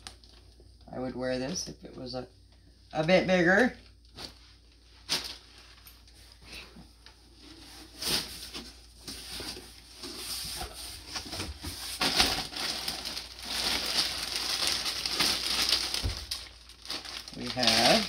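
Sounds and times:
plastic packaging crinkling: 8.0s - 18.0s.

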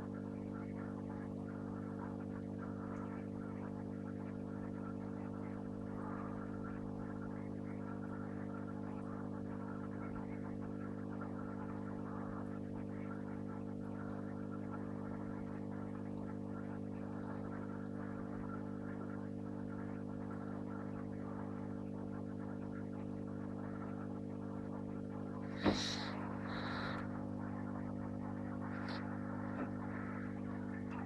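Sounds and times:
aquarium equipment hum: 0.0s - 31.0s.

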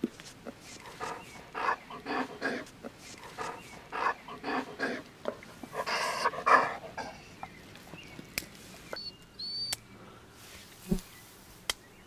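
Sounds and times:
large dog panting: 0.8s - 7.6s.

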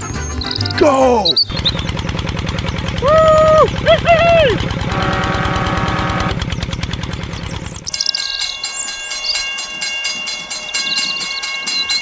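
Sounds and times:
low engine putter: 0.0s - 12.0s
toy steam train chuffing clicks: 0.0s - 12.0s.

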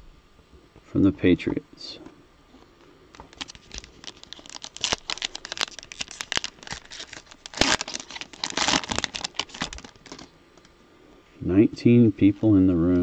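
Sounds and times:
foil wrapper tearing and crinkling: 3.1s - 10.3s
wrapper rustling: 3.1s - 10.4s.

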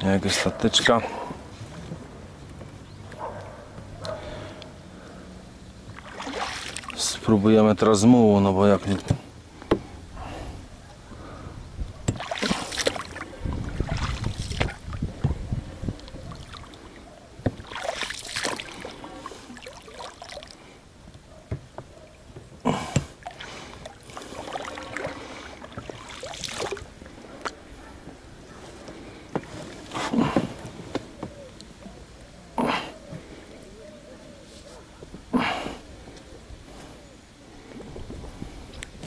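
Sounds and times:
oars splashing through water: 1.1s - 7.4s, 12.0s - 33.6s.

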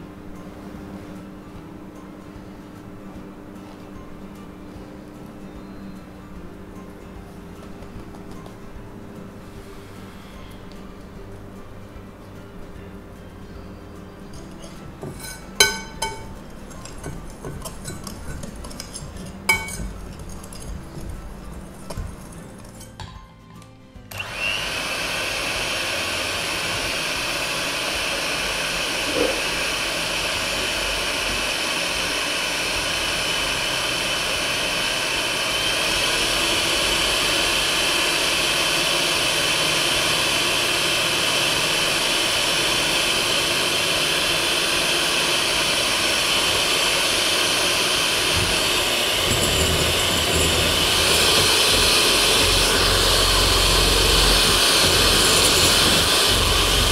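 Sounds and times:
electric hand mixer whipping: 14.4s - 22.9s, 24.1s - 56.9s.

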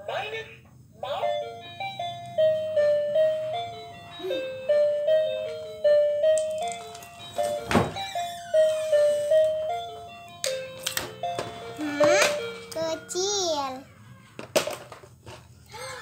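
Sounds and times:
simple electronic melody: 1.1s - 13.2s.

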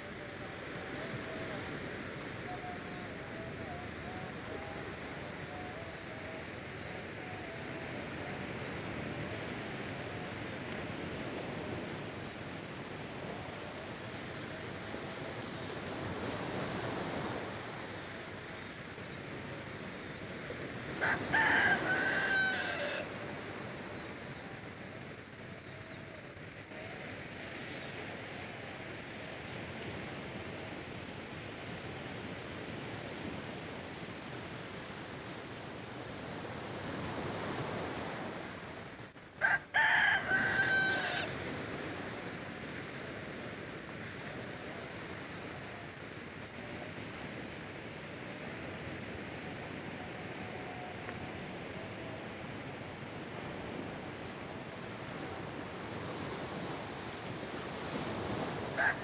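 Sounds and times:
small surf on shore: 0.0s - 59.0s
rooster crowing: 20.9s - 23.5s, 39.4s - 41.6s, 58.7s - 59.0s.

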